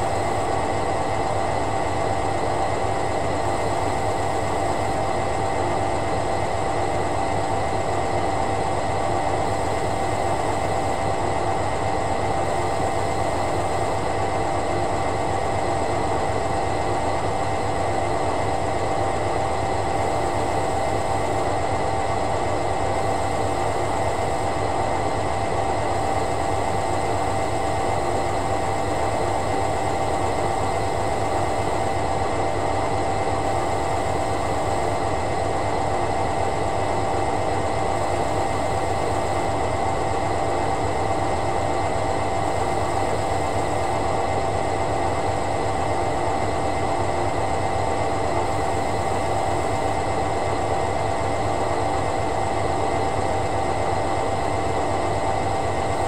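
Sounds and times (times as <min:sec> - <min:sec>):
washing machine hum and hiss: 0:00.0 - 0:56.0.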